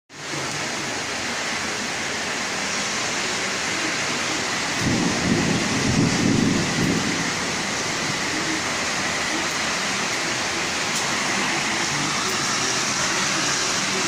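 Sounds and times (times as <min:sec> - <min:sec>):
heavy rain: 0:00.1 - 0:14.0
strong wind: 0:03.6 - 0:09.2.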